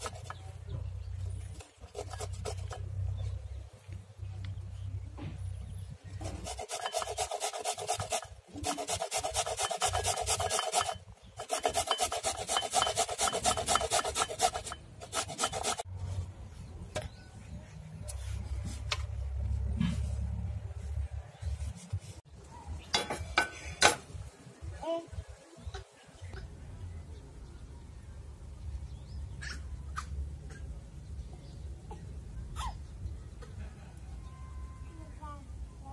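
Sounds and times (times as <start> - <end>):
root rasping on a grater: 0.0 - 0.4, 1.6 - 2.9, 6.2 - 15.9
soft scrapes and taps: 16.1 - 20.3.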